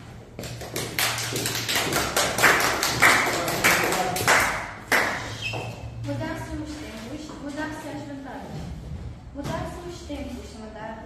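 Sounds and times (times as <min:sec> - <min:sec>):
applause: 0:00.5 - 0:05.2.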